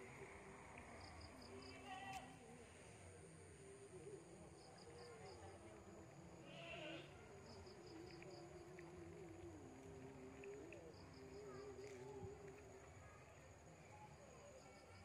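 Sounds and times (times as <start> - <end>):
insect chirping: 0.0 - 15.0.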